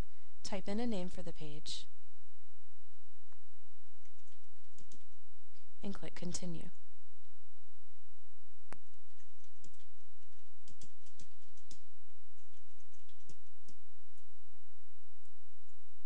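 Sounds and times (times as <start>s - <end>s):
low electrical hum: 0.0s - 16.0s
keyboard typing: 4.0s - 5.2s, 8.8s - 13.8s.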